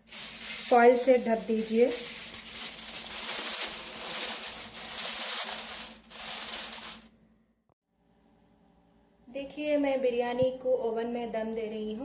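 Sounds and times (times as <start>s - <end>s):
aluminium foil crinkling: 0.0s - 7.1s.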